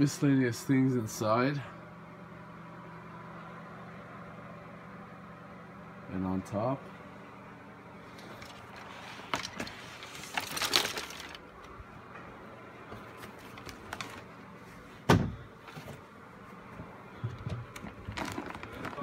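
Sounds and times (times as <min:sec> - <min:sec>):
faint steady hum: 0:00.0 - 0:19.0
rustling scrape: 0:08.2 - 0:11.4
heavy thump: 0:15.1 - 0:15.4.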